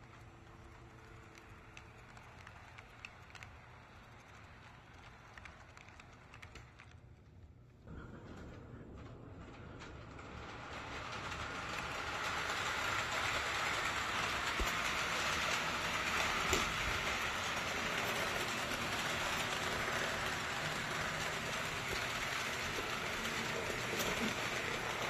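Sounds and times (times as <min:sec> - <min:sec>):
faint clicks: 0:00.0 - 0:07.5
model locomotive running hiss: 0:09.9 - 0:25.0.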